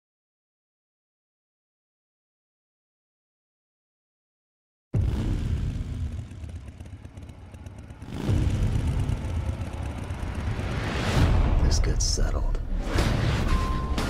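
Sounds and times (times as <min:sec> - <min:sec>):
motorcycle engines rumbling: 0:05.0 - 0:12.2.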